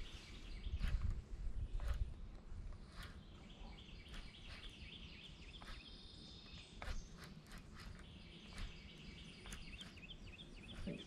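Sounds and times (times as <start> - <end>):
high bird chirps: 2.9 - 11.0.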